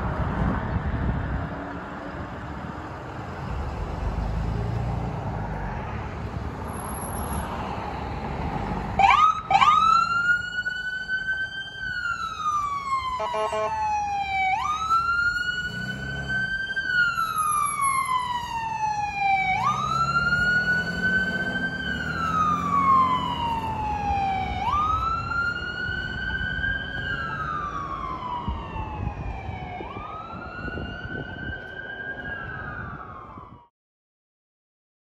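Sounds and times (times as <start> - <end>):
engine rumble: 0.0 - 13.2
electronic siren wailing: 9.0 - 33.7.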